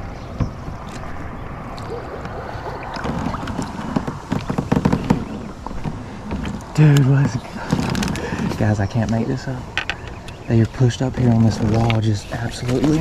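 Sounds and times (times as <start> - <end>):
water splashing and sloshing: 0.0 - 9.1.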